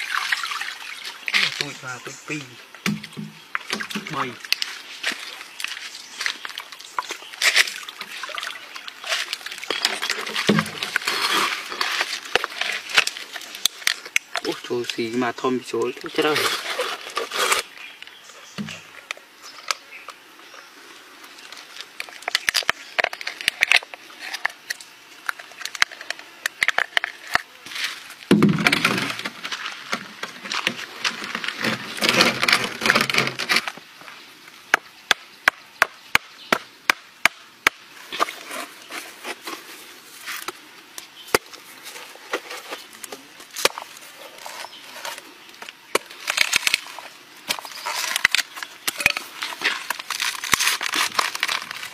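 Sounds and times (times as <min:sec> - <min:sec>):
coconut husk cracking: 0:01.3 - 0:19.8, 0:21.3 - 0:33.8, 0:34.7 - 0:51.9
scraping and rustling: 0:09.0 - 0:15.1, 0:15.9 - 0:17.8, 0:38.0 - 0:51.9.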